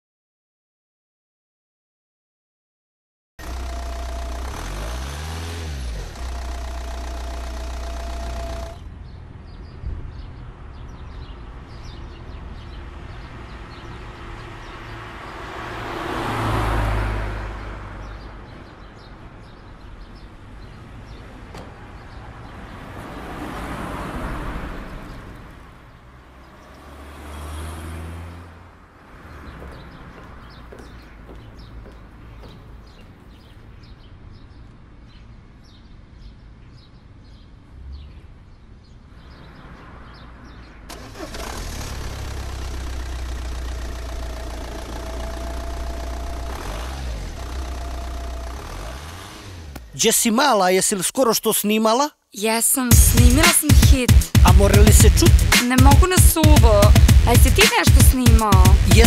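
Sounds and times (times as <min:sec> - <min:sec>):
car engine idling: 0:03.4 - 0:09.2, 0:40.9 - 0:50.0
vehicles driving past: 0:03.4 - 0:51.1, 0:54.1 - 0:59.0.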